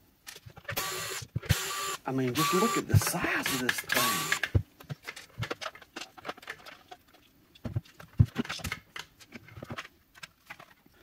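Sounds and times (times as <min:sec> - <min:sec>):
hard plastic clicks and scrapes: 0:02.9 - 0:10.9.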